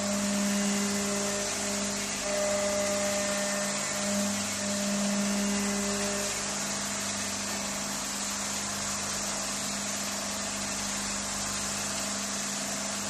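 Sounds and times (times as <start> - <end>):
cutter hissing through wood: 0.0 - 7.9
router spindle humming: 0.0 - 9.2.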